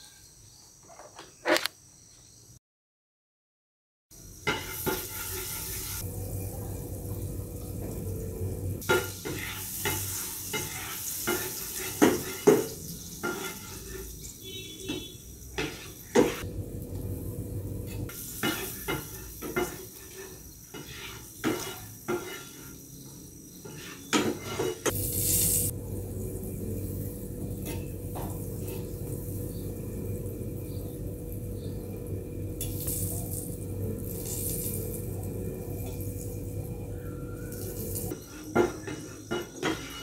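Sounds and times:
onions sizzling in pan: 4.2 - 40.0
wooden spatula scraping frying pan: 8.9 - 14.1, 14.9 - 16.4, 18.2 - 22.8, 23.6 - 25.7, 38.2 - 40.0.

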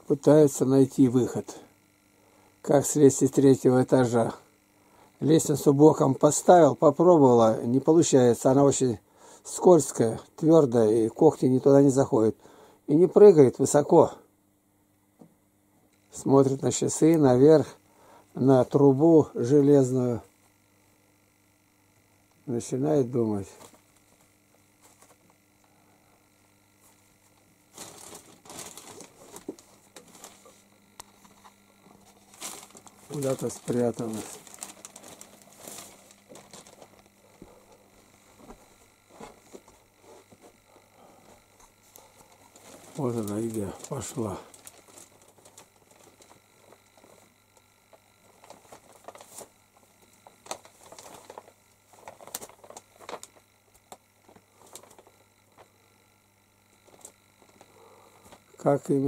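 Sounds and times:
rustling and crinkling: 23.5 - 25.4, 26.8 - 55.8, 56.7 - 58.5.

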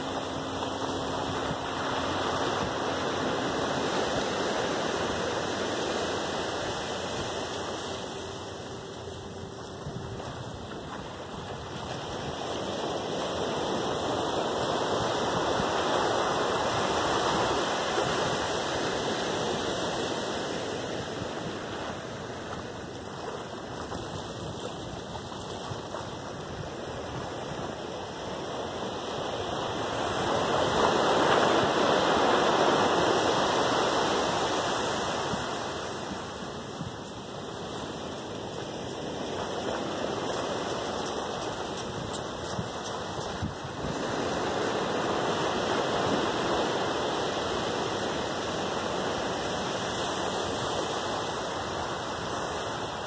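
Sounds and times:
small waves washing on beach: 0.0 - 53.0.

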